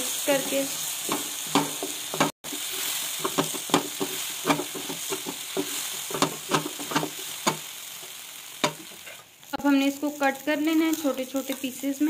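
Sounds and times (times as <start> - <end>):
food sizzling: 0.0 - 12.0
spatula scraping frying pan: 0.3 - 7.7.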